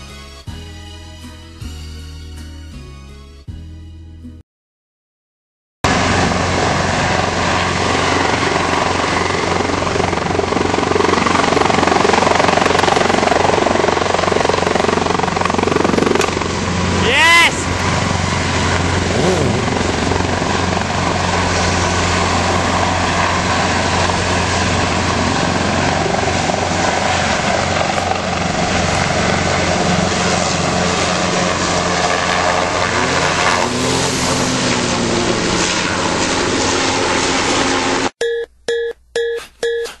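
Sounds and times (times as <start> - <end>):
helicopter flying overhead: 5.9 - 38.1
motorcycle engine revving: 18.6 - 20.2.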